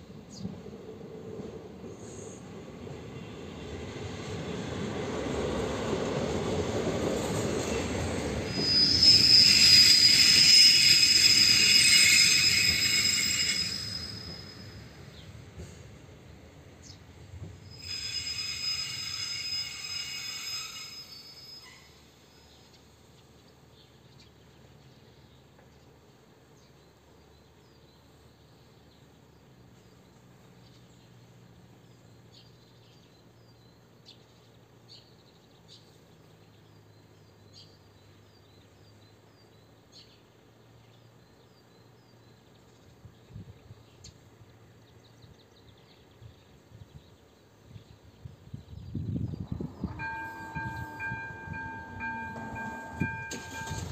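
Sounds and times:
train wheel squeal: 6.1 - 15.3, 17.6 - 22.5, 48.7 - 53.9.

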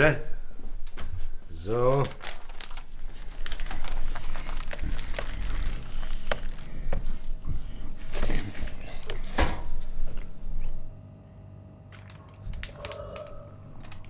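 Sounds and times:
paper crinkling and rustling: 1.6 - 10.4, 11.9 - 14.0.

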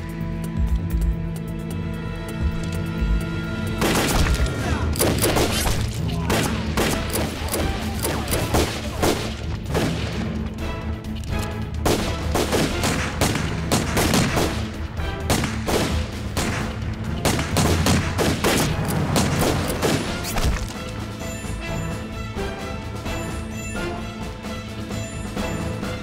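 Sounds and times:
background music with low notes: 0.0 - 26.0
gunshots in quick succession: 3.8 - 10.4, 11.8 - 20.7.

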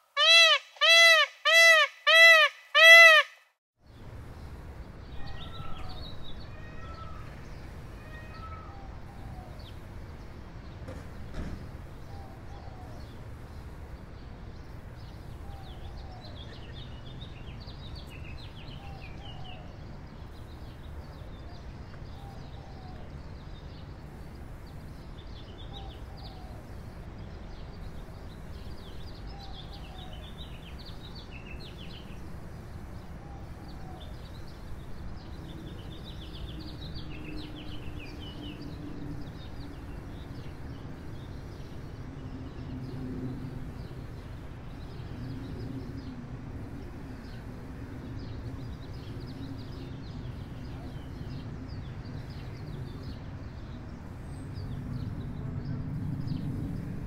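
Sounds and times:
small birds twittering: 3.8 - 43.0.

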